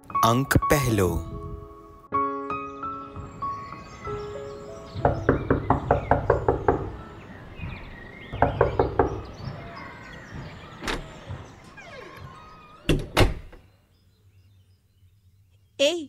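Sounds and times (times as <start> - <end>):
knocking on a door: 4.9 - 7.0, 7.6 - 11.7.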